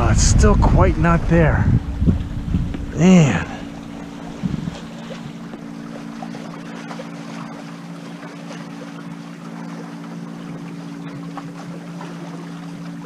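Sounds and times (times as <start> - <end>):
wind noise: 0.0 - 5.3
low hum of held tones: 0.0 - 13.0
water rushing along hulls: 0.0 - 13.0.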